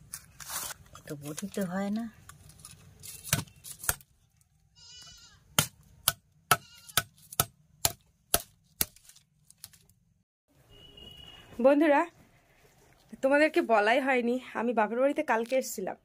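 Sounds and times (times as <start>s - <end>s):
short animal bleat: 4.8s - 5.4s.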